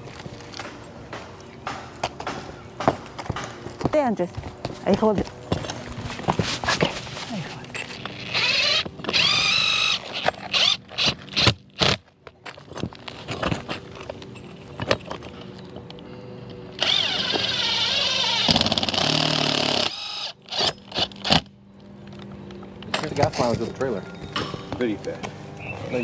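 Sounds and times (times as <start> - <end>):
cordless drill driving screws: 7.9 - 12.0, 16.8 - 21.4.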